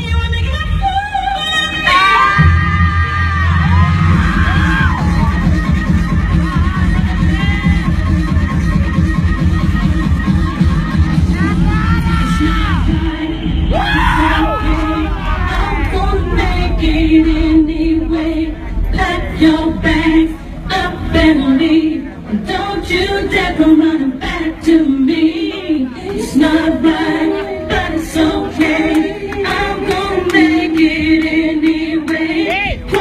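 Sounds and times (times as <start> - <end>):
loud music with heavy bass beat: 0.0 - 23.5.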